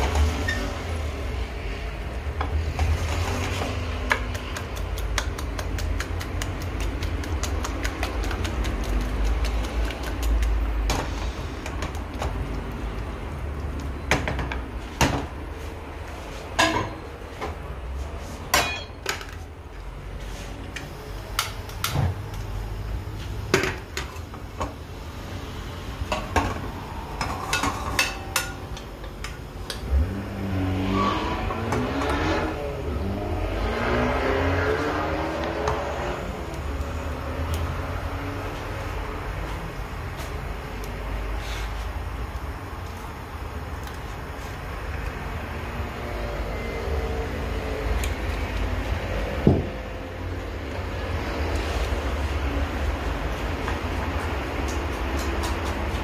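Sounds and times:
metal utensils clinking on dishes: 0:18.5 - 0:19.2.

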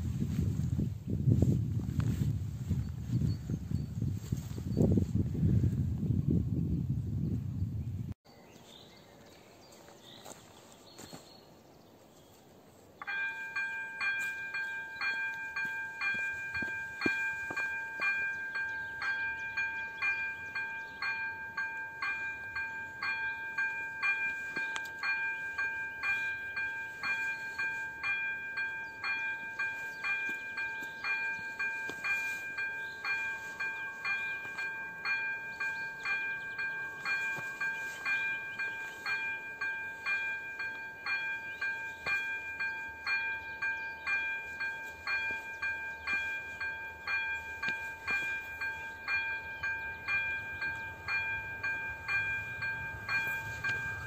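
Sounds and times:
level crossing warning bell: 0:13.0 - 0:54.0.

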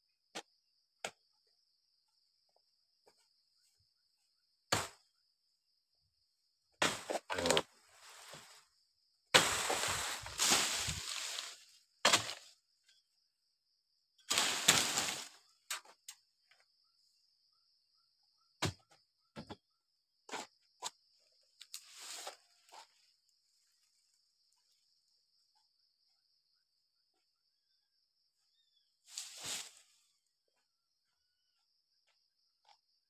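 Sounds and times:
chisel chopping palm fronds: 0:04.7 - 0:05.0, 0:06.8 - 0:07.6, 0:09.3 - 0:12.5, 0:14.3 - 0:15.3
fronds crashing through leaves: 0:09.4 - 0:12.4, 0:14.3 - 0:15.4
high insect buzz: 0:14.2 - 0:15.7.

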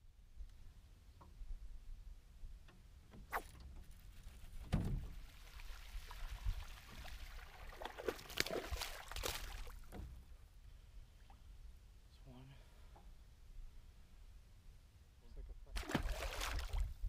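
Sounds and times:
dull thump: 0:04.6 - 0:05.2
water splashing: 0:05.0 - 0:09.9, 0:15.8 - 0:16.9.

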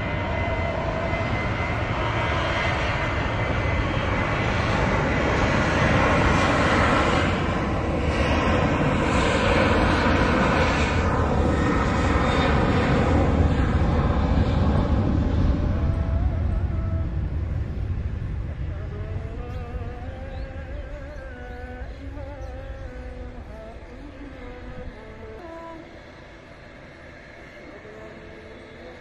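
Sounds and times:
jet engines at takeoff thrust: 0:00.0 - 0:29.0.

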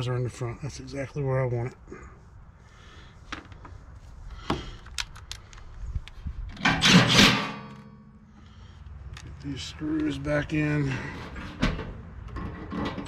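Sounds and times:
loud scraping rattle: 0:06.5 - 0:08.1.

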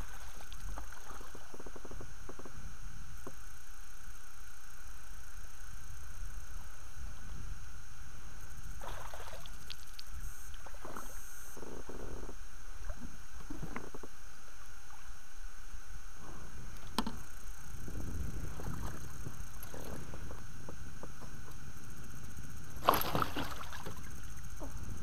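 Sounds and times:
water splashing: 0:08.8 - 0:09.8, 0:22.8 - 0:24.1.

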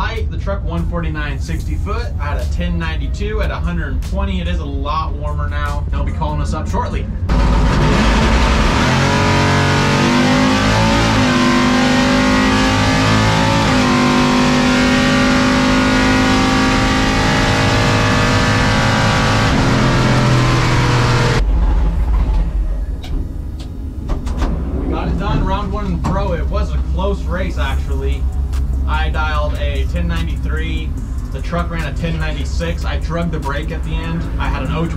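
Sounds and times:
truck engine at full throttle: 0:06.8 - 0:22.9, 0:23.8 - 0:34.9.

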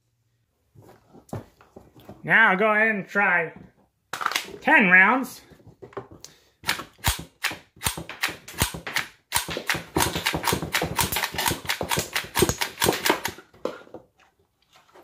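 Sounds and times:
pistol action clicking and clacking: 0:06.6 - 0:13.4.

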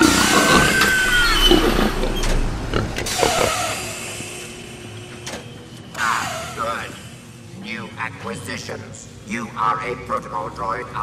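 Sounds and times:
low hum: 0:00.0 - 0:09.7
machinery hiss with whine: 0:03.1 - 0:11.0.

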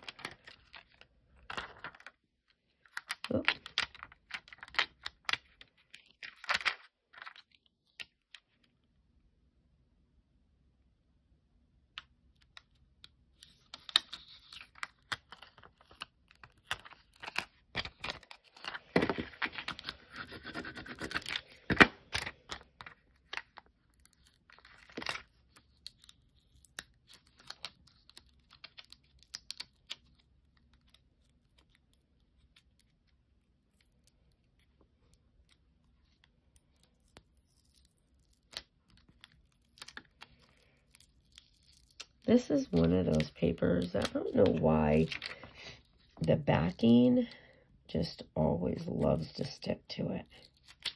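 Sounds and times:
plastic sheet crinkling and peeling: 0:13.3 - 0:46.8.

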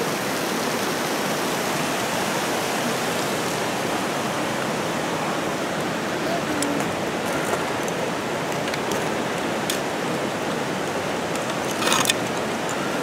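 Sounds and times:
flowing water rushing: 0:00.0 - 0:13.0.

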